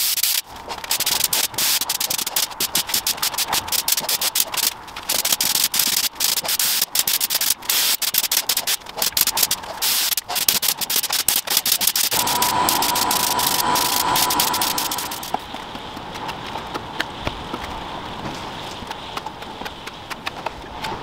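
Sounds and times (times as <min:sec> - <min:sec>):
spray gun hissing: 0:12.1 - 0:15.4.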